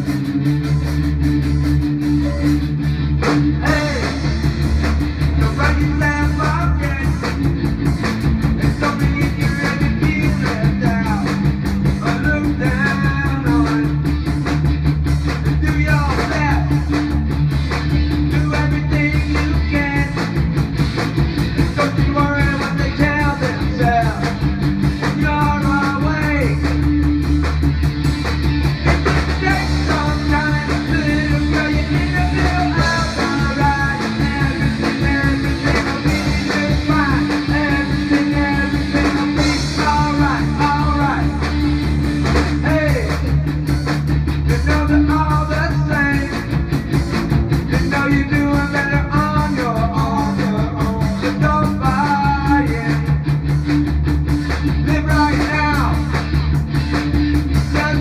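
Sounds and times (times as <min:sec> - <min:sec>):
bass guitar: 0:00.0 - 0:58.0
distorted electric guitar: 0:00.0 - 0:58.0
drum kit: 0:00.0 - 0:58.0
man singing into a microphone: 0:03.6 - 0:04.4, 0:05.4 - 0:07.4, 0:08.6 - 0:14.0, 0:15.5 - 0:17.0, 0:18.3 - 0:20.3, 0:21.6 - 0:26.8, 0:29.3 - 0:41.6, 0:42.5 - 0:43.5, 0:44.5 - 0:46.6, 0:47.7 - 0:53.2, 0:54.8 - 0:56.2, 0:57.6 - 0:58.0.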